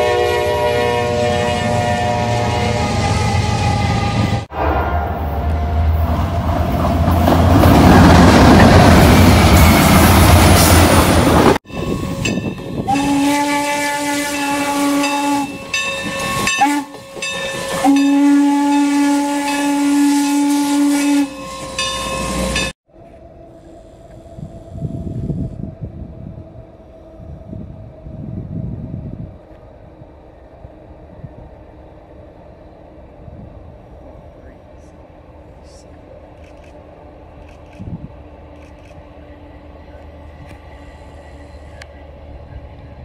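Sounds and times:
steam whistle blasts: 0.0 - 6.0, 11.8 - 22.7
train rolling rumble: 0.0 - 19.9, 21.4 - 43.0
outdoor background: 0.0 - 43.0
train engine hum: 0.0 - 43.0.

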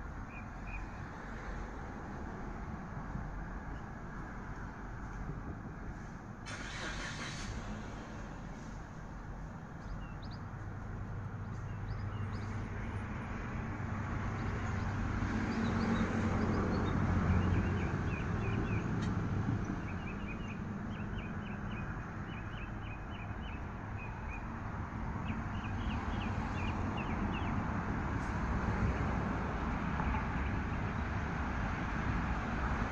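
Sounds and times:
road traffic noise: 0.0 - 32.9
high small-bird chirps: 9.8 - 10.5, 19.6 - 24.5.

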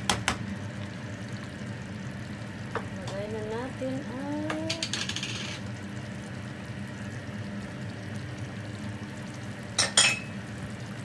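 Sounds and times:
ingredient rattling from cup: 4.7 - 5.6.

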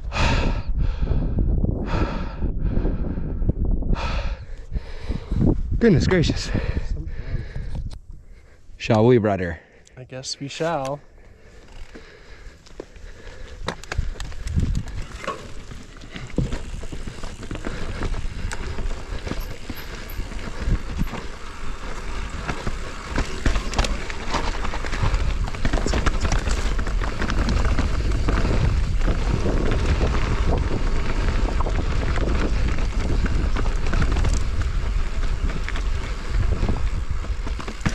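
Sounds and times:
wind on microphone: 0.0 - 8.4, 13.8 - 15.2, 16.3 - 37.9
bike rattling over bumps: 11.2 - 37.9.

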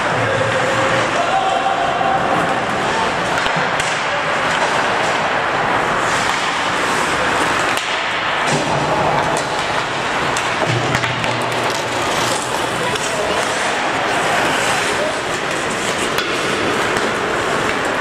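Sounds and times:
loud rushing noise: 0.0 - 18.0
skates scraping ice: 0.0 - 18.0
sticks and puck clacking: 0.0 - 18.0.

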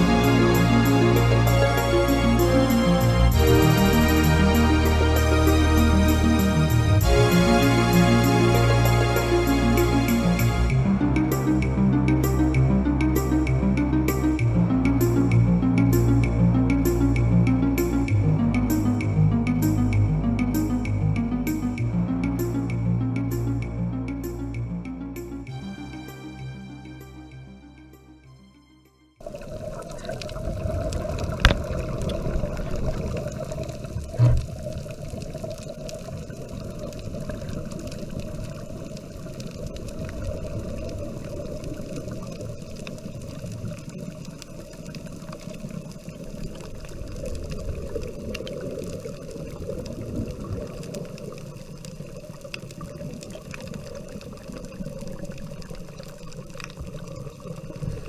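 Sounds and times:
underwater bubbling of exhaled air: 29.2 - 58.0.

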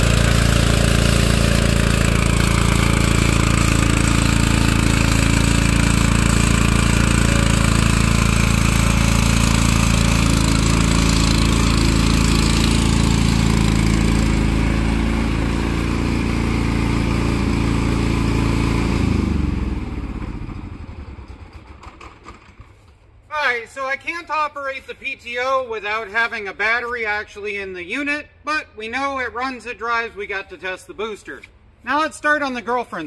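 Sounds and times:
lawn tractor engine running: 0.0 - 23.4.

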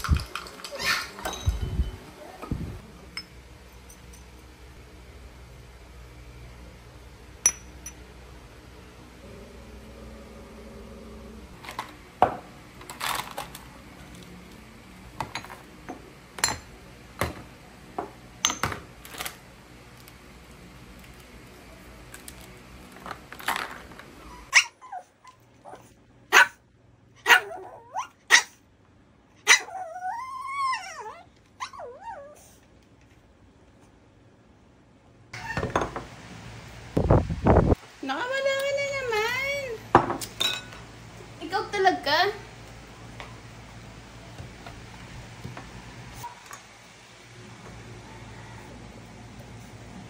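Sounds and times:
dog whining: 0.6 - 1.2, 24.2 - 25.9, 27.3 - 28.6, 29.4 - 32.6, 35.3 - 35.8
dog barking: 26.3 - 26.6, 27.2 - 28.6.

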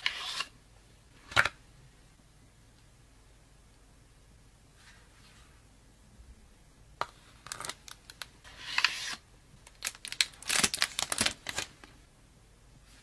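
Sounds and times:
box crinkles and clicks: 9.7 - 11.7
shrink-wrap peeling and tearing: 9.7 - 11.7.

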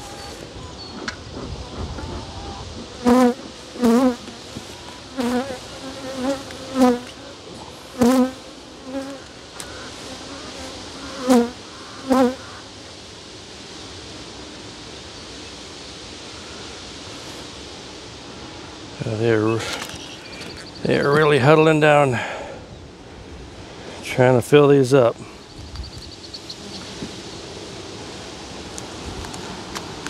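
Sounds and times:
bees buzzing past: 2.8 - 12.7.

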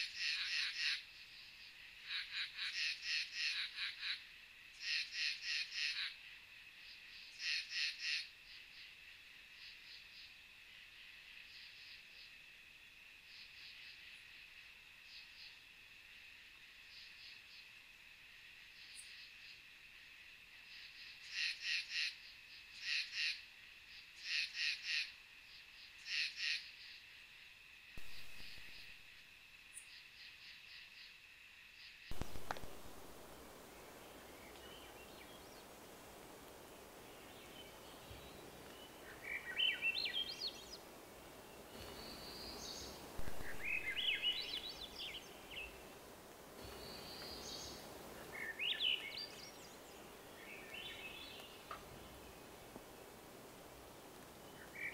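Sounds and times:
frog calling: 0.0 - 1.1, 2.0 - 6.2, 7.3 - 8.4, 21.2 - 22.2, 22.8 - 23.5, 24.2 - 25.2, 26.0 - 26.8
high-pitched night insect chorus: 0.0 - 54.9
thrush singing whistled notes: 41.8 - 45.8.

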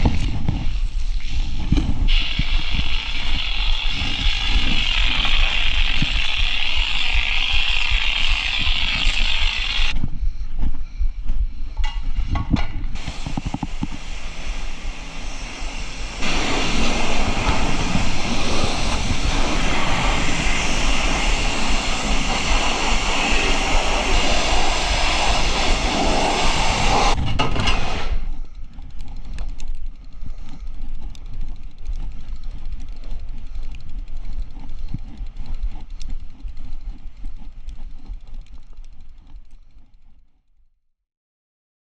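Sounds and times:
bike riding rumble: 0.0 - 40.6
pressure washer spraying water: 2.1 - 10.0, 13.0 - 27.2.

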